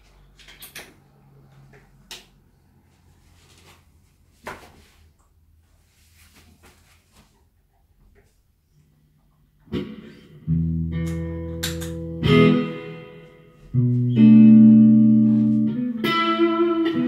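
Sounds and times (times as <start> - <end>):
guitar handling knocks and clicks: 10.9 - 12.6.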